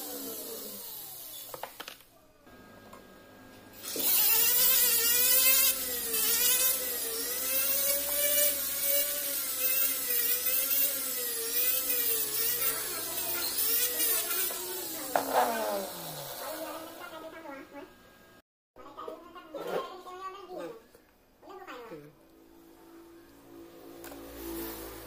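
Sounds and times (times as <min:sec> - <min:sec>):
rotary tool whining: 0:00.0 - 0:02.1, 0:03.7 - 0:17.4.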